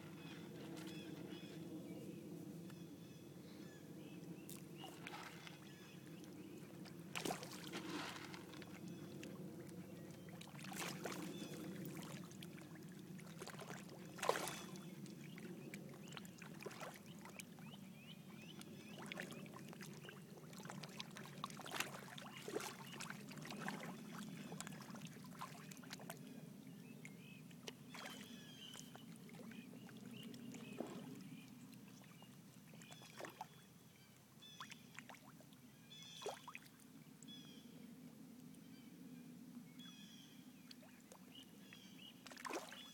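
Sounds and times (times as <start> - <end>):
water sloshing and splashing: 4.4 - 17.8, 18.4 - 26.3, 27.6 - 33.5, 42.2 - 42.9
sharp splashes: 7.1 - 8.3, 10.6 - 12.2, 13.3 - 14.8, 42.2 - 42.9.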